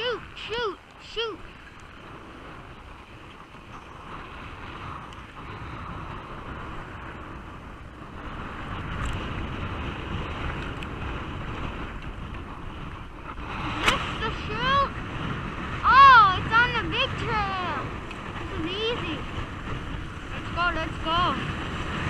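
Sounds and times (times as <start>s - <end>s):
wind rumbling on microphone: 0.0s - 22.0s
skis sliding on snow: 16.7s - 22.0s.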